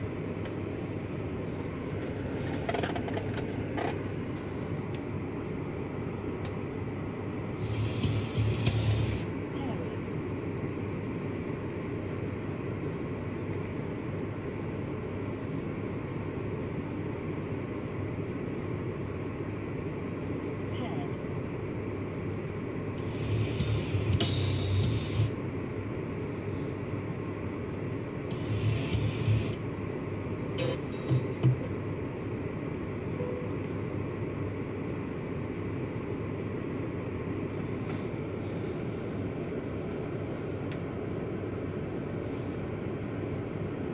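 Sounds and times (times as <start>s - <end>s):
car cabin rumble and hiss: 0.0s - 43.9s
car cabin low rumble: 30.5s - 31.9s.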